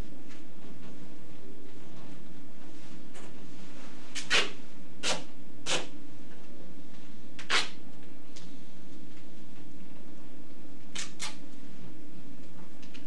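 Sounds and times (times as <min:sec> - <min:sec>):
duct tape ripping off roll: 0:04.1 - 0:05.9, 0:07.4 - 0:07.8, 0:10.9 - 0:11.4.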